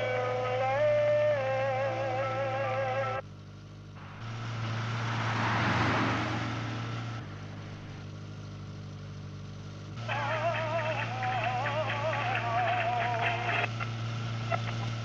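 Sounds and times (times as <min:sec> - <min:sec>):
car driving past: 0:03.9 - 0:09.1.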